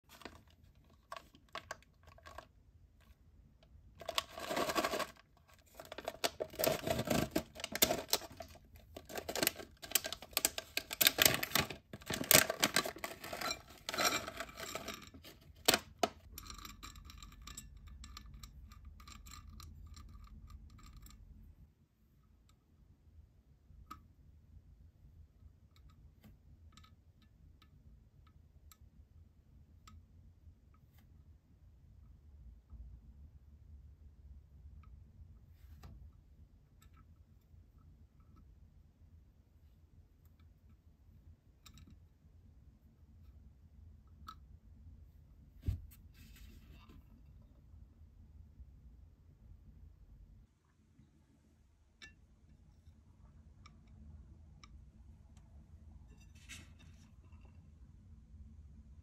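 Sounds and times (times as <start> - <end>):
plastic pouch crinkling and tearing: 4.0 - 14.2.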